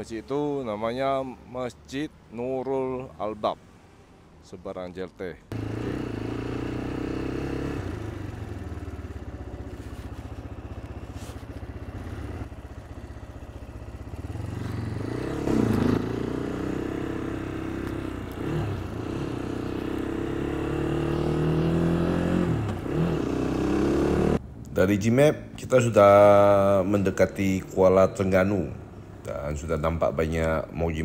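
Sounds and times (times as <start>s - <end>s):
motorcycle engine idling and accelerating: 5.5s - 24.6s.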